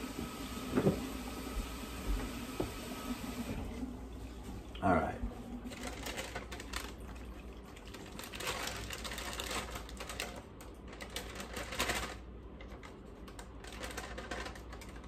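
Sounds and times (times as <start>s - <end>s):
plastic bag crinkling: 5.3s - 15.0s.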